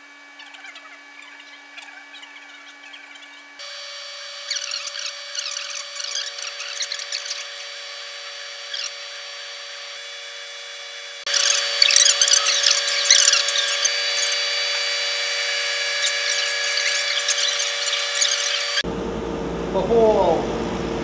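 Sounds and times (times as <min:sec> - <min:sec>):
laser cutter humming: 0:00.0 - 0:19.3
scratchy crackling: 0:04.3 - 0:09.2, 0:11.2 - 0:18.8.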